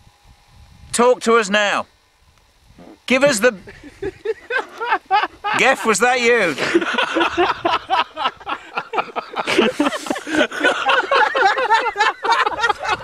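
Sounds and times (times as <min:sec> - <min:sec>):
men laughing: 0:03.2 - 0:13.0.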